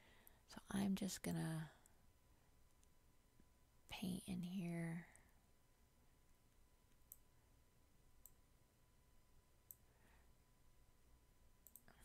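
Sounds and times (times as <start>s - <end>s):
faint sharp mouse clicks: 8.2s - 8.4s, 11.6s - 12.0s.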